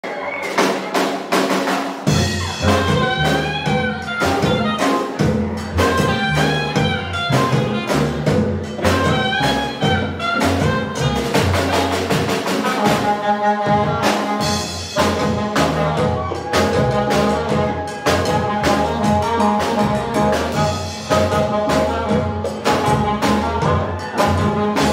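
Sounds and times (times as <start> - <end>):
drums: 0.0 - 24.9
keyboard: 2.0 - 24.9
saxophone melody: 2.1 - 24.9
upright bass: 2.1 - 24.9.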